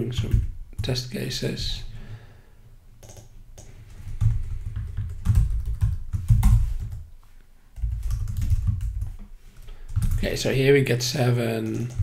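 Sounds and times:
keyboard typing clicks: 3.0 - 7.0, 11.6 - 12.0.

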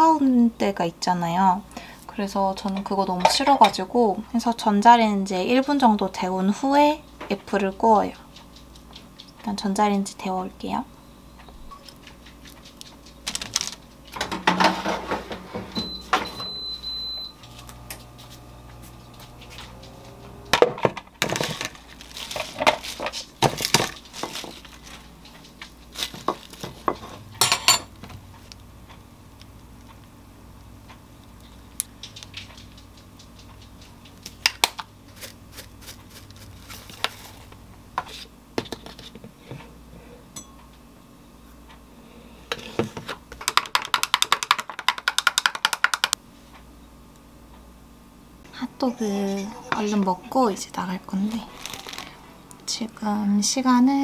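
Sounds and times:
low steady hum: 0.0 - 43.5, 46.1 - 54.0
plates and dishes clinking: 14.2 - 16.5, 26.8 - 28.0.

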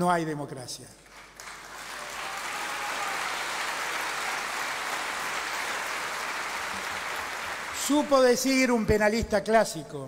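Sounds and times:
large audience applauding: 1.1 - 8.4.

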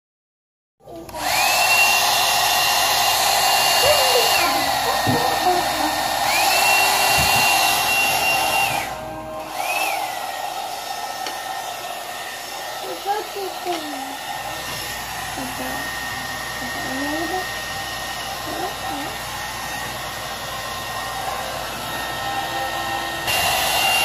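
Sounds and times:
hot air brush fan rushing: 1.1 - 24.0.

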